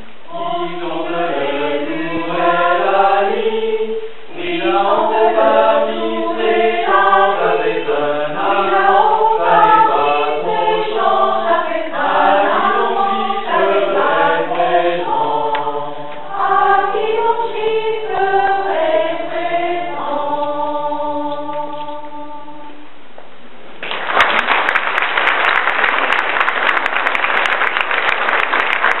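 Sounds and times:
mixed choir singing a cappella: 0.3 - 22.8
audience applause: 23.8 - 29.0.

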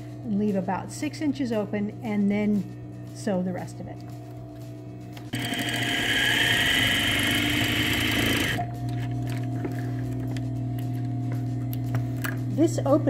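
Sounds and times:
sewing machine stitching: 5.3 - 8.6.

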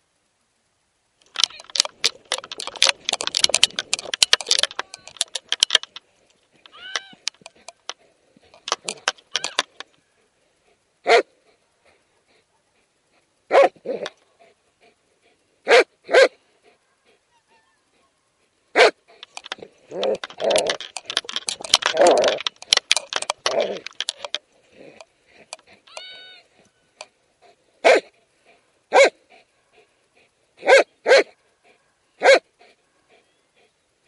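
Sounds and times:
dogs growling and scuffling: 1.4 - 6.0, 19.0 - 25.9
dogs barking: 11.0 - 11.3, 13.5 - 14.1, 15.6 - 17.2, 18.7 - 20.8, 27.8 - 28.1, 28.9 - 29.9, 30.6 - 33.3.

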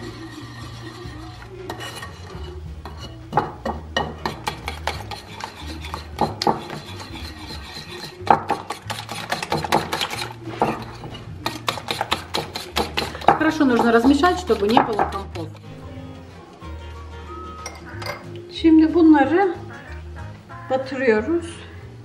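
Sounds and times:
wire whisk scraping a dish: 0.0 - 3.3, 4.2 - 15.7.

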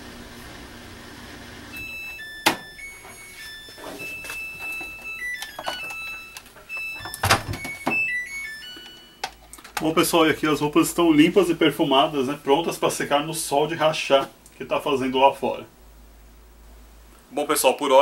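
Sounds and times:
washer low hum: 0.0 - 15.7
electronic beep tune: 1.8 - 9.5.

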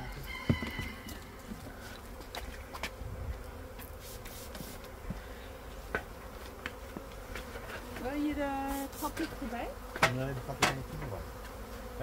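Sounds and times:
bees buzzing: 0.0 - 12.0.

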